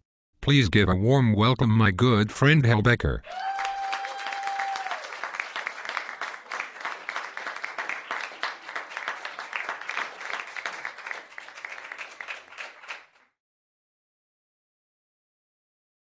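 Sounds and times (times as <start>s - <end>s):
audience applause: 3.3s - 13.2s.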